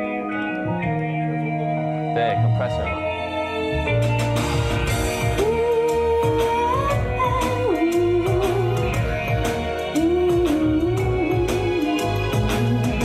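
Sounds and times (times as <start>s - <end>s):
pop backing track: 0.0s - 13.0s
woman singing wordless melody: 5.3s - 13.0s.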